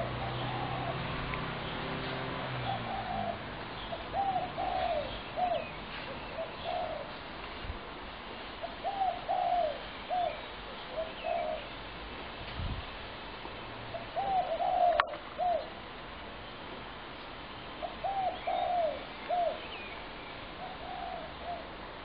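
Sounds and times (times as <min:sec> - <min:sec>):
doves cooing: 0:00.0 - 0:07.2, 0:08.6 - 0:11.7, 0:13.9 - 0:15.7, 0:17.8 - 0:19.7, 0:20.6 - 0:21.8
small birds chirping: 0:00.0 - 0:07.2, 0:08.6 - 0:12.0.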